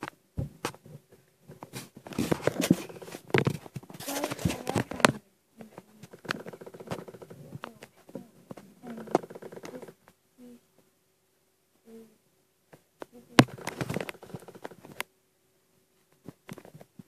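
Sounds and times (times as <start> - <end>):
low voice murmurs: 4.0 - 10.6, 11.8 - 12.2.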